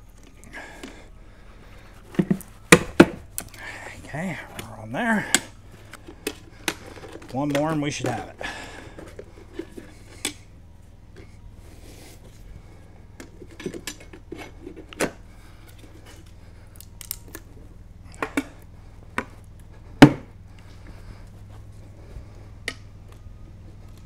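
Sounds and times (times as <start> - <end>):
metal tire spoons clinking and scraping: 1.9 - 10.5.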